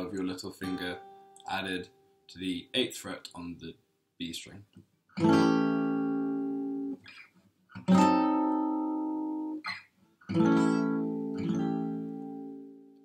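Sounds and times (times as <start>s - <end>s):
acoustic guitar strummed chords: 5.2s - 7.0s, 7.8s - 9.7s, 10.3s - 13.0s.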